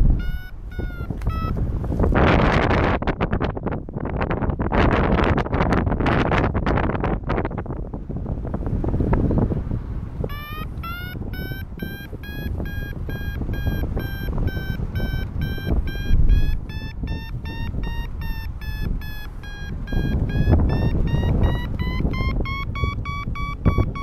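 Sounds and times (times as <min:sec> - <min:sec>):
variometer beeping: 0:00.0 - 0:02.2, 0:10.2 - 0:24.0
wind rushing over microphone: 0:00.0 - 0:24.0.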